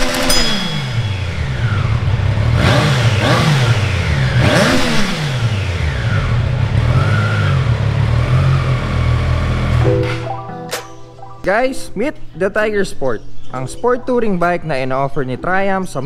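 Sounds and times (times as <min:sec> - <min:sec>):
motorcycle engine idling and revving: 0:00.0 - 0:09.8.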